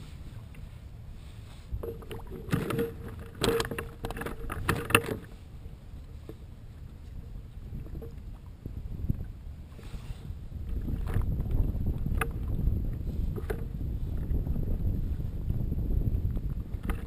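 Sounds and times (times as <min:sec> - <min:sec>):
wind and water rumble: 0:00.0 - 0:17.0.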